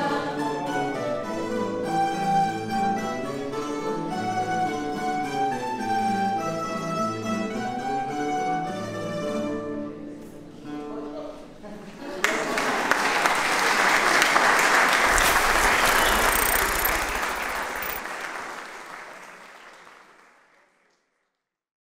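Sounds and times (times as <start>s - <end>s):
audience applauding: 12.2s - 21.2s.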